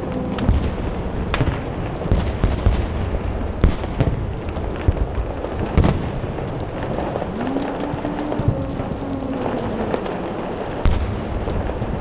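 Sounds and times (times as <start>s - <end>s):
fire crackling and popping: 0.0s - 12.0s
rush of flame: 0.0s - 12.0s.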